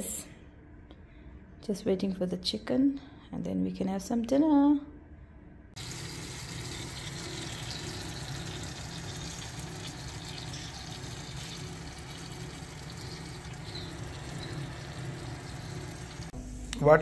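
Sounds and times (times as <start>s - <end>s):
fat sizzling in roasting tray: 5.8s - 16.4s
oven humming: 5.8s - 17.0s.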